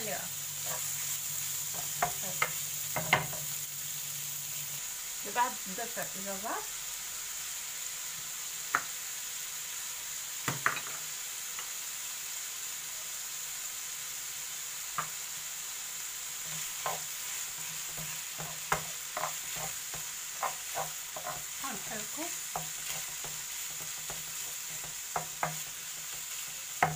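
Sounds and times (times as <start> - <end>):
meat sizzling in a frying pan: 0.0 - 26.9
knocks against a pan: 10.5 - 11.0.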